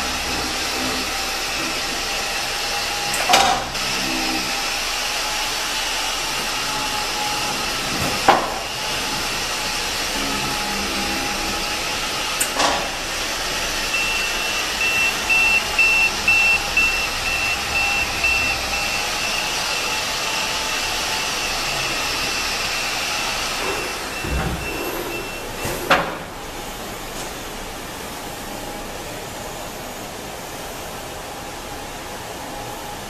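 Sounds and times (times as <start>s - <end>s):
lift warning buzzer beeping: 10.0s - 25.9s.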